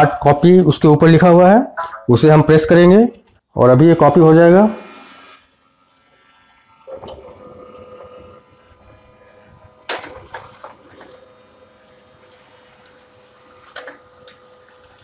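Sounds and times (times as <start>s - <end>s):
printer motor hum: 4.4s - 15.0s.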